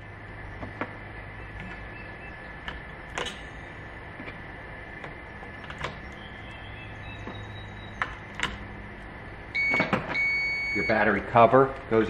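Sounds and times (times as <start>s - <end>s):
low hum: 0.0s - 10.9s.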